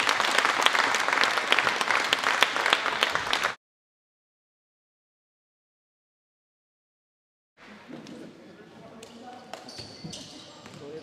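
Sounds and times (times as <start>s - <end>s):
spectators applauding: 0.0s - 3.6s.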